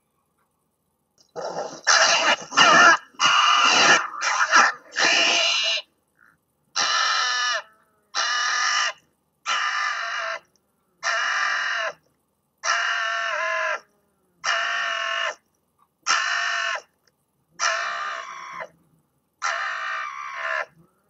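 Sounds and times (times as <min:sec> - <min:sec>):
fox screaming: 0:01.4 - 0:05.9, 0:06.8 - 0:12.0, 0:12.6 - 0:15.4, 0:16.0 - 0:16.9, 0:17.6 - 0:18.8, 0:19.4 - 0:20.9.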